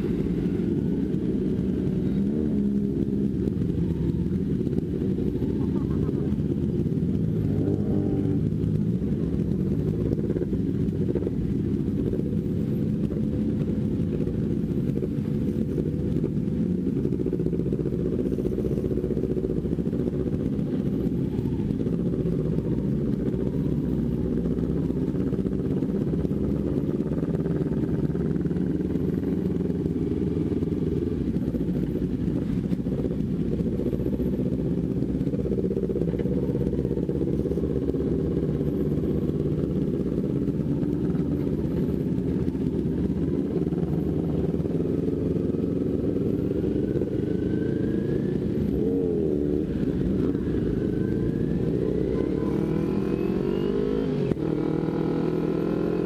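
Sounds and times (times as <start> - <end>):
muffled motorcycle engine running: 0.0 - 56.0.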